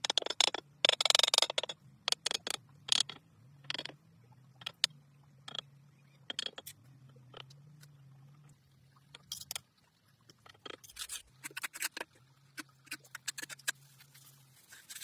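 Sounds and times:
trowel scraping mortar: 12.9s - 15.0s.

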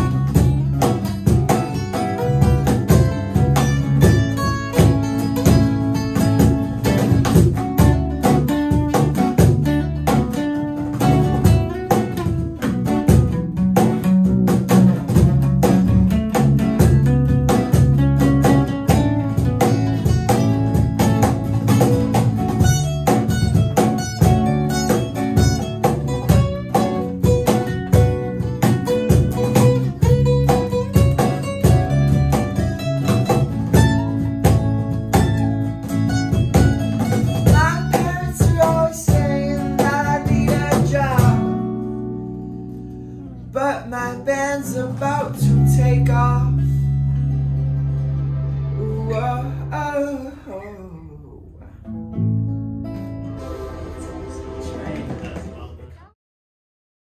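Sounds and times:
cajon beat: 0.0s - 49.1s, 51.8s - 56.2s
acoustic guitars strummed: 0.0s - 50.8s, 51.8s - 56.2s
bass guitar low notes: 0.0s - 56.1s
person singing: 37.4s - 41.6s, 43.2s - 46.8s, 48.8s - 51.9s.

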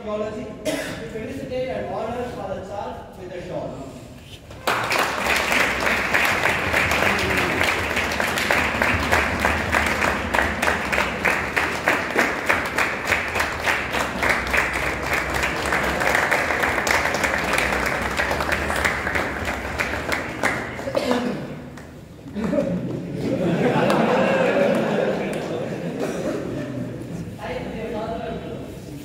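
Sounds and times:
crowd clapping in rhythm: 4.5s - 25.6s.

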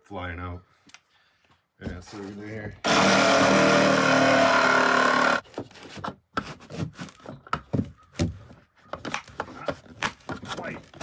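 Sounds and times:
jigsaw motor running: 2.8s - 5.4s.

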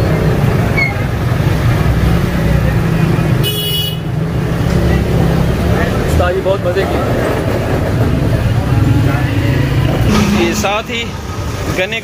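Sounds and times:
vehicle horn toot: 3.4s - 4.0s
low engine rumble: 7.0s - 12.0s.

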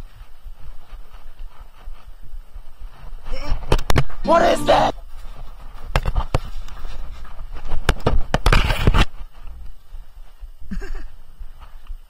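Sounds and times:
rubbing and scraping on camera: 5.4s - 9.6s.

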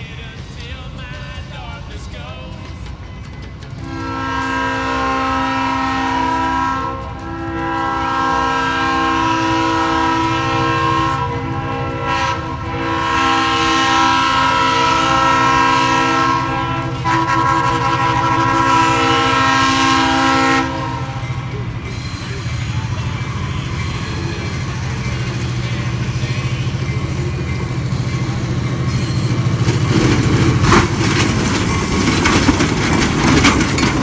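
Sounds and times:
locomotive engine rumbling: 0.0s - 34.0s
locomotive air horn blasts: 3.8s - 21.5s.

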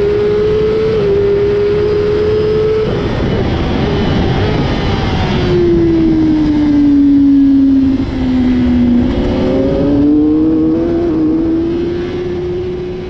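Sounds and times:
motorcycle engine: 0.0s - 13.0s
wind rush: 0.0s - 13.0s.

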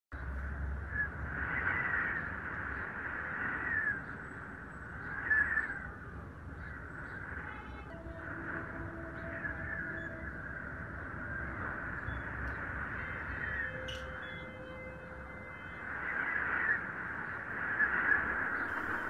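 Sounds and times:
steady hiss: 15.9s - 19.0s
bird cawing: 18.7s - 19.0s.

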